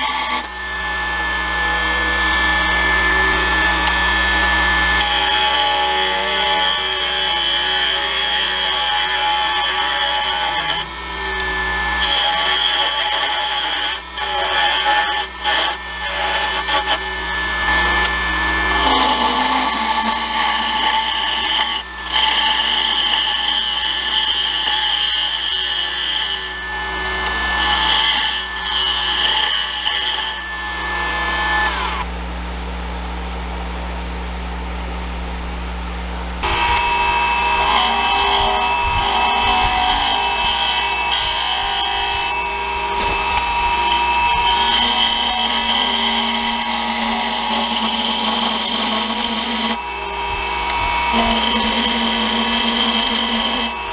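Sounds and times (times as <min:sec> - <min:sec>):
lathe motor hum: 0:00.0 - 0:32.1, 0:36.4 - 0:53.9
lathe tool scraping wood: 0:00.0 - 0:32.1, 0:36.4 - 0:53.9
high tone sliding down: 0:00.4 - 0:05.0.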